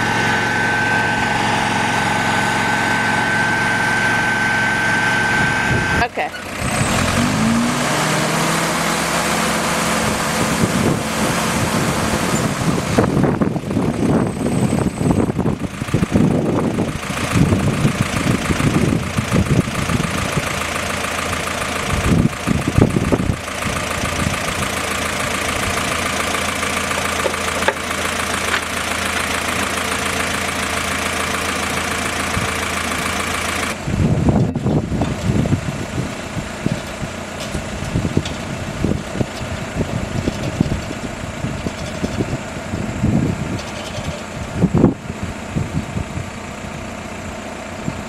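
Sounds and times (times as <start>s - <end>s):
jeep engine running: 0.0s - 48.0s
winch clanks and rattles: 26.3s - 29.8s.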